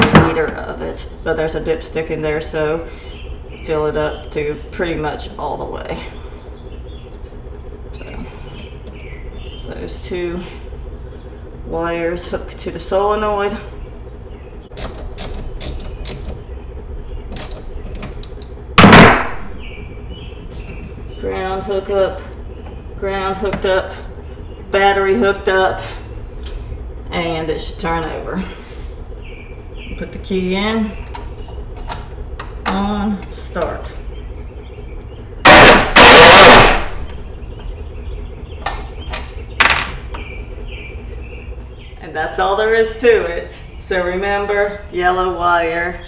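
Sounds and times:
loud knock with ringing tail: 18.8s - 19.5s.

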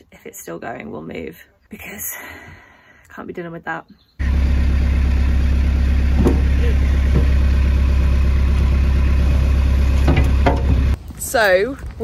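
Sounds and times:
diesel engine humming: 4.2s - 11.6s.

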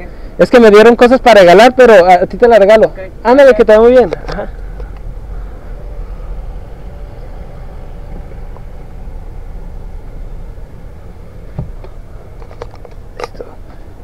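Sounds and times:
car engine rumbling: 0.0s - 14.0s.

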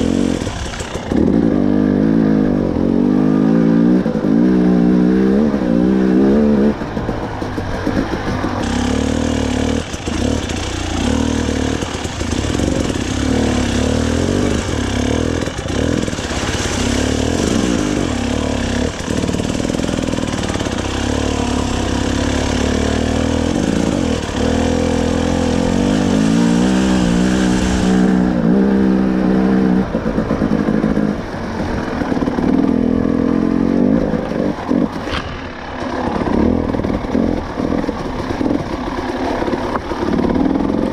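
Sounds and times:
dirt bike engine revving: 0.0s - 40.9s
knocks and clatter: 6.7s - 13.1s.

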